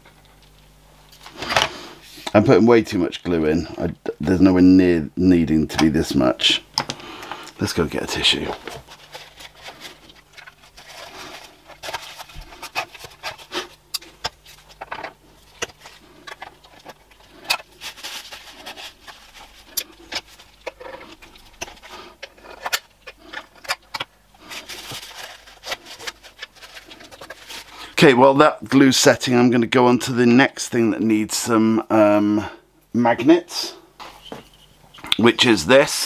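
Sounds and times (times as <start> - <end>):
craft knife scraping plastic: 8.3 - 27.8
tissue rubbing and rustling: 17.7 - 20.5.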